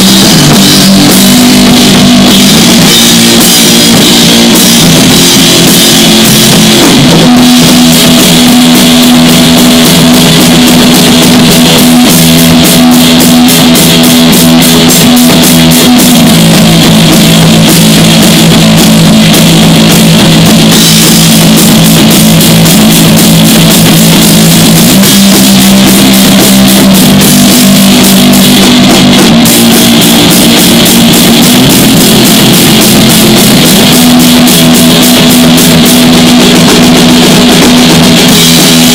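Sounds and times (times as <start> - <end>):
electric guitar low notes: 0.0 - 38.9
steady drumming: 0.0 - 38.9.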